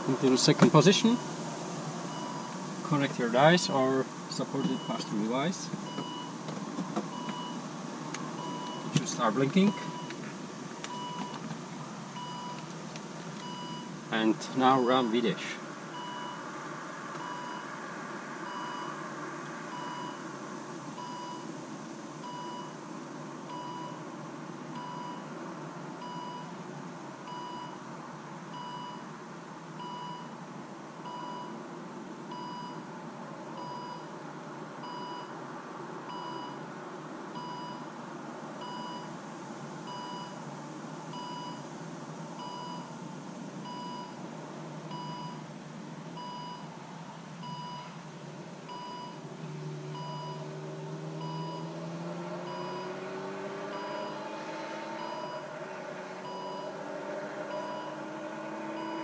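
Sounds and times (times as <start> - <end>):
car warning chime beeping: 2.1 - 6.4, 7.1 - 7.6, 8.4 - 10.2, 10.8 - 11.4, 12.1 - 12.7, 13.4 - 16.4, 17.2 - 17.7, 18.4 - 19.0, 19.7 - 20.2, 21.0 - 21.5, 22.2 - 22.8, 23.5 - 24.0, 24.8 - 25.3, 26.0 - 26.6, 27.3 - 27.8, 28.5 - 29.1, 29.8 - 30.4, 31.0 - 31.6, 32.3 - 32.9, 33.6 - 34.1, 34.8 - 35.3, 36.1 - 36.6, 37.4 - 37.9, 38.6 - 39.1, 39.9 - 40.4, 41.1 - 41.7, 42.4 - 42.9, 43.6 - 44.2, 44.9 - 45.4, 46.2 - 46.7, 47.4 - 48.0, 48.7 - 49.3, 49.9 - 54.3, 54.9 - 55.5, 56.2 - 56.9, 57.5 - 59.0.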